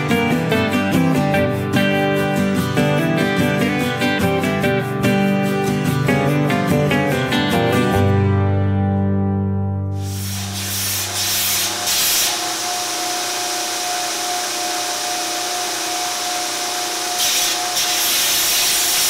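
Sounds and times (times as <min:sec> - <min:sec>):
belt grinder sanding wood: 0:10.0 - 0:19.0.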